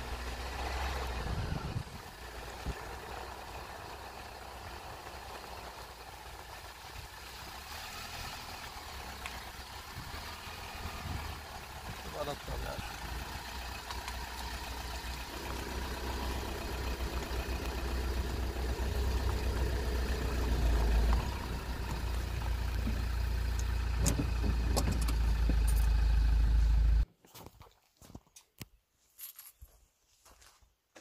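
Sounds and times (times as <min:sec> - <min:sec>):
wind buffeting microphone: 0:01.2 - 0:02.8.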